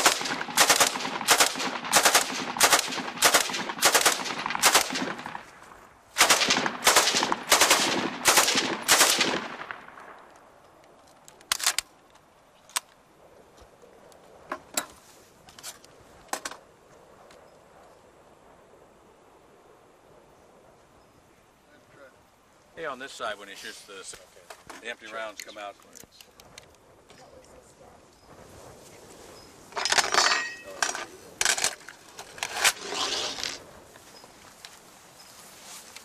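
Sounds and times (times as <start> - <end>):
machine gun firing: 0.0 - 5.4, 6.2 - 9.9
metallic clacks of gun handling: 10.2 - 13.0, 29.7 - 33.6.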